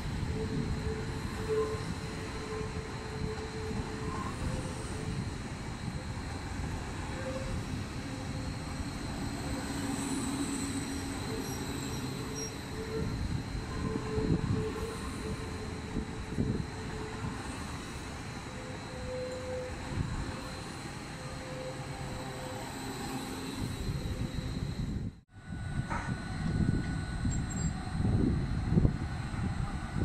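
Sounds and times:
train rumbling slowly: 0:00.0 - 0:30.0
train wheel squeals: 0:00.0 - 0:30.0.

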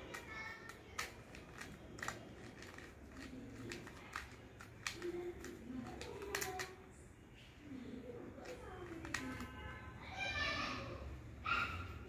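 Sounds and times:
puzzle cube clicking: 0:00.0 - 0:06.8, 0:08.4 - 0:09.5.

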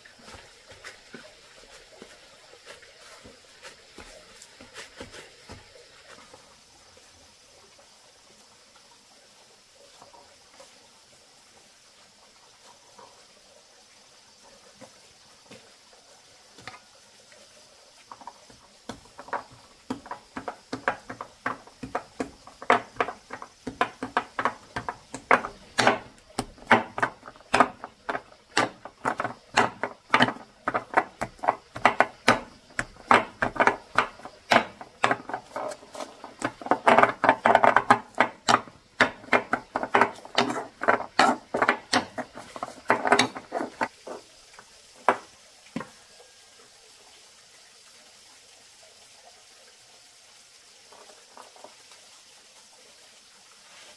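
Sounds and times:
sharp knocks: 0:18.9 - 0:43.9.

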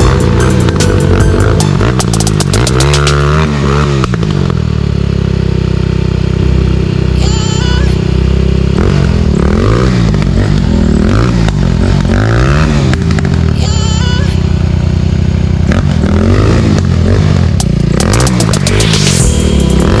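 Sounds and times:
dirt bike engine revving: 0:00.0 - 0:04.8, 0:05.5 - 0:13.9, 0:15.2 - 0:20.0.

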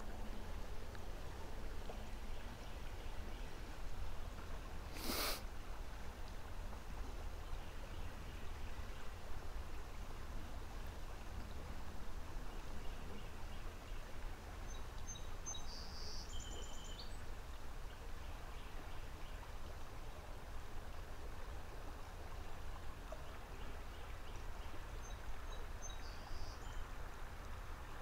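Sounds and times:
low rumble with hiss: 0:00.0 - 0:28.0
songbird singing: 0:12.5 - 0:17.3, 0:23.1 - 0:27.0.

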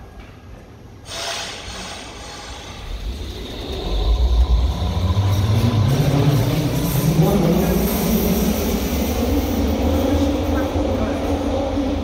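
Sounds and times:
train brake hiss: 0:01.0 - 0:03.3
train rumble and motor hum: 0:02.8 - 0:12.0.

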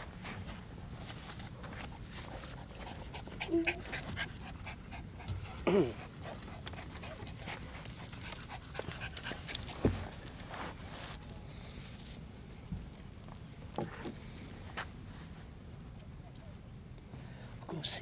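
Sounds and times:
dog whining: 0:03.4 - 0:04.1.

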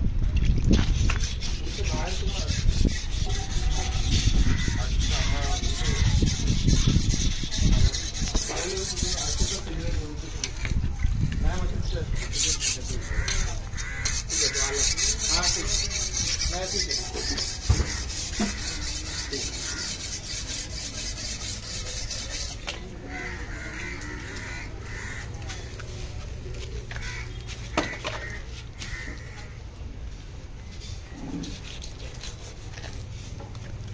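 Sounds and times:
knife scraping on wet concrete: 0:00.7 - 0:10.8, 0:11.5 - 0:23.8, 0:30.8 - 0:33.9
crows cawing: 0:04.3 - 0:06.2, 0:13.0 - 0:14.9, 0:17.8 - 0:20.2, 0:23.0 - 0:25.8, 0:26.9 - 0:29.6.

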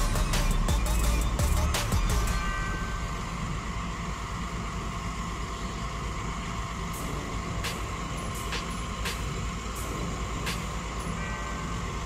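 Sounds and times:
diesel machinery rumbling: 0:00.0 - 0:12.0
steady machine whine: 0:00.0 - 0:12.0.

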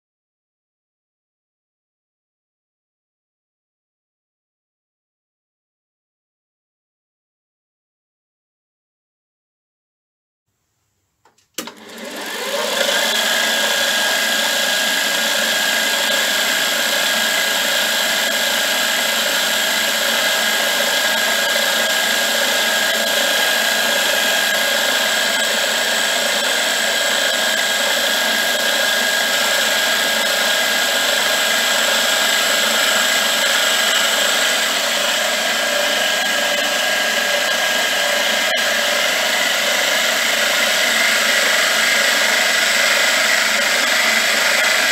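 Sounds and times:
milling machine cutting metal: 0:11.6 - 0:44.9.

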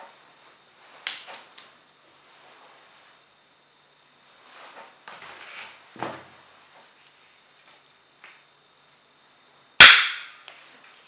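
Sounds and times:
soft rustles and light knocks: 0:04.3 - 0:08.4
sharp loud ringing click: 0:09.8 - 0:10.4.

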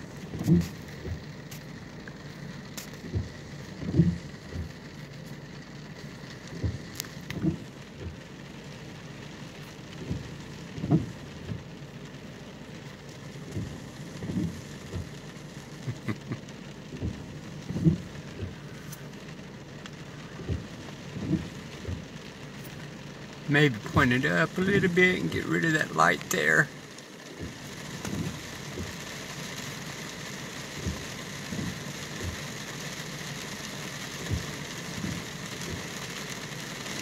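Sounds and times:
raindrops thudding on car roof: 0:00.0 - 0:37.0
steady rain: 0:00.0 - 0:37.0.

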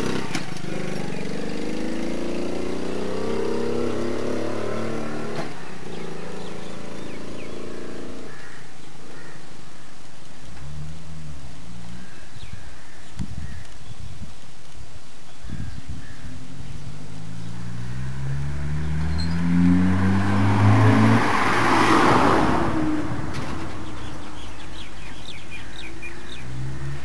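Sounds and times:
small motorbike engine: 0:00.0 - 0:08.4
car passing by: 0:17.1 - 0:24.7.

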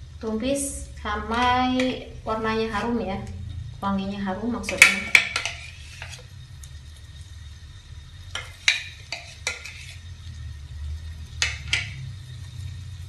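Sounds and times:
paste sizzling in oil: 0:04.5 - 0:13.0
spatula scraping frying pan: 0:04.7 - 0:06.4, 0:08.3 - 0:10.3, 0:11.2 - 0:12.4.

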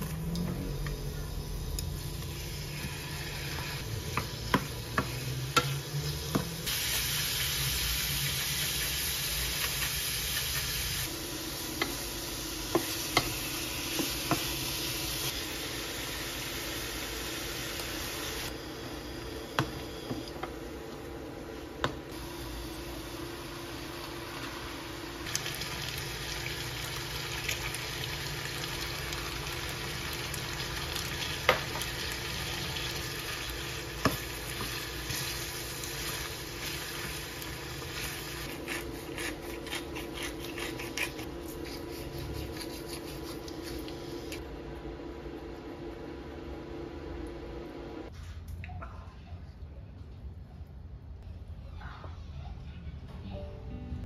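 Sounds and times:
shrimp sizzling in a frying pan: 0:01.4 - 0:18.5, 0:25.3 - 0:38.5.

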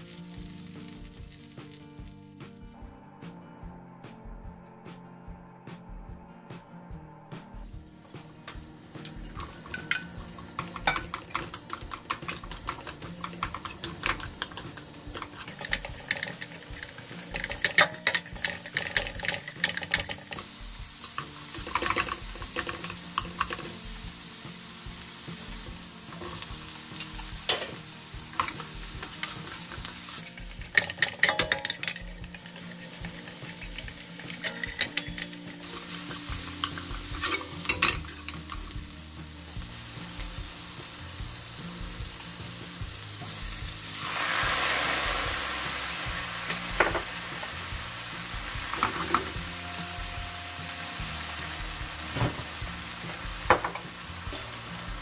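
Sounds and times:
onions sizzling in butter: 0:00.0 - 0:02.2, 0:08.0 - 0:55.0
chopsticks clicking and scraping a pan: 0:08.4 - 0:23.8, 0:26.1 - 0:38.8.

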